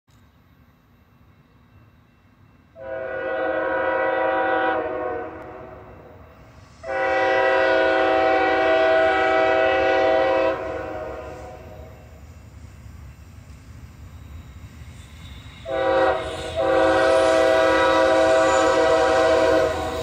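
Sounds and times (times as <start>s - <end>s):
low rumble of train: 0.1s - 20.0s
locomotive air horn blasts: 2.8s - 6.0s, 6.8s - 11.9s, 15.6s - 20.0s.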